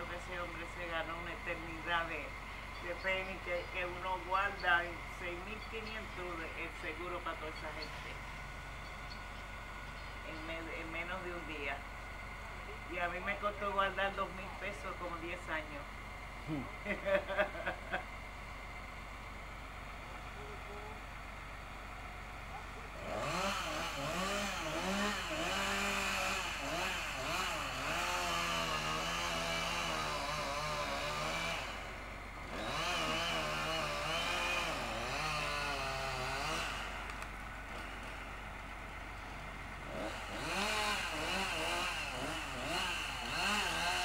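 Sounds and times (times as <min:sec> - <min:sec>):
chainsaw engine revving: 0:22.9 - 0:38.2, 0:39.7 - 0:44.0.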